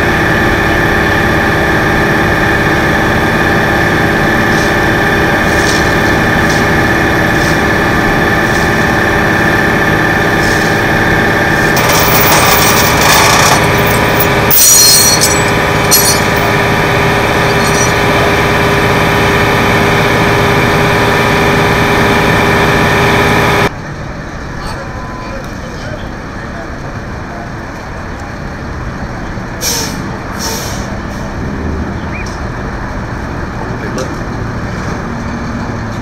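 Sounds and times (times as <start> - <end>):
truck engine idling: 0.0 - 31.3
metallic clanks and scraping: 11.7 - 16.7, 17.3 - 18.1.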